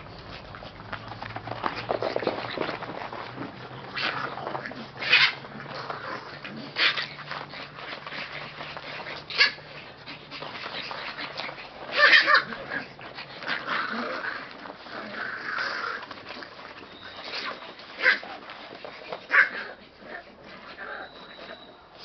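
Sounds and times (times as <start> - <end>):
dogs scuffling: 0.0 - 22.0
dog yips: 5.0 - 5.4, 9.2 - 9.8, 11.2 - 12.6, 16.8 - 18.4, 19.1 - 19.8, 20.6 - 21.8.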